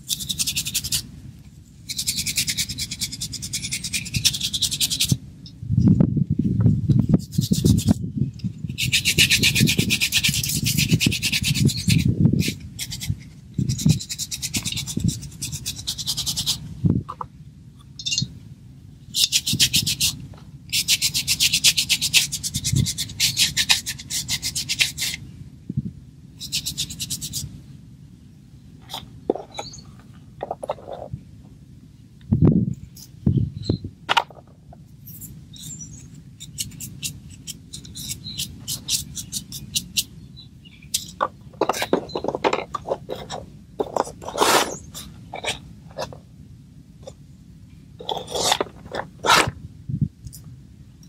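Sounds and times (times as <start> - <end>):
plant stems rubbing: 0.0 - 1.1, 34.1 - 40.1, 40.8 - 46.2, 48.0 - 49.6.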